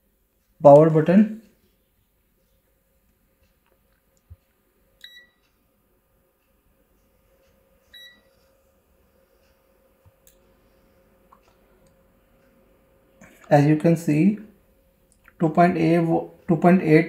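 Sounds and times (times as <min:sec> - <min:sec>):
multimeter short high beeps: 0:05.0 - 0:05.4, 0:08.0 - 0:08.3.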